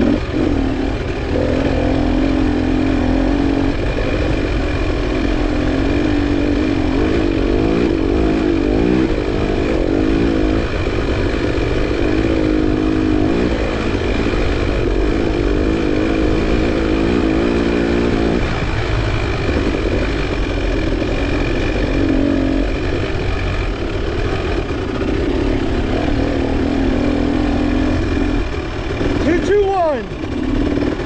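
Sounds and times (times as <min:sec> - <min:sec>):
dirt bike engine revving: 0:00.0 - 0:31.0
low rumble of wind and ground: 0:00.0 - 0:31.0.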